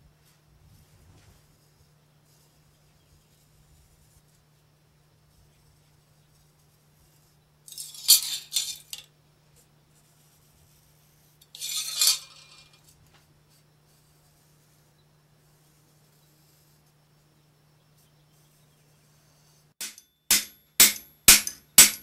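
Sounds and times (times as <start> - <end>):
faint steady hum: 0.0 - 22.0
metal clinking and scraping: 7.7 - 9.1, 11.4 - 13.0.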